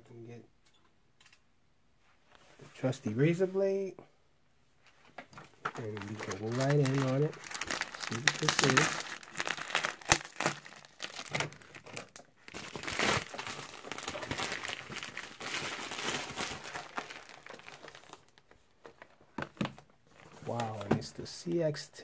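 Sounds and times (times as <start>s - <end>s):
plastic packaging crinkling: 5.6s - 20.8s.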